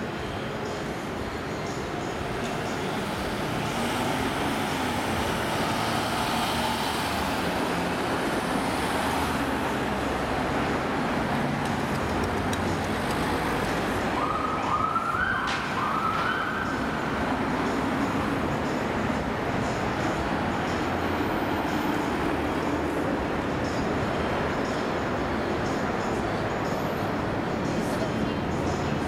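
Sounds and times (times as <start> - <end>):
passing cars and buses: 0.0 - 29.0
emergency vehicle siren: 13.9 - 17.4.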